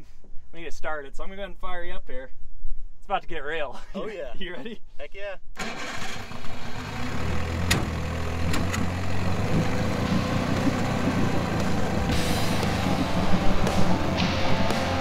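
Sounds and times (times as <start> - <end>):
outboard motor idling: 5.6 - 13.8.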